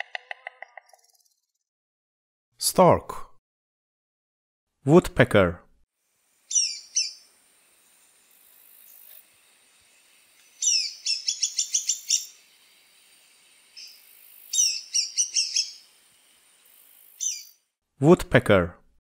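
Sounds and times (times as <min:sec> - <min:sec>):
woodpecker high chirps: 0:06.5 - 0:07.3, 0:10.4 - 0:12.5, 0:13.7 - 0:16.0, 0:17.1 - 0:17.6.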